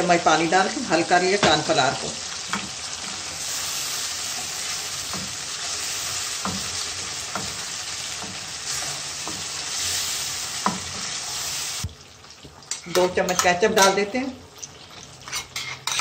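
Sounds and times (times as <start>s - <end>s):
chicken sizzling in a wok: 0.0s - 16.0s
spatula knocking on pan: 6.4s - 8.5s.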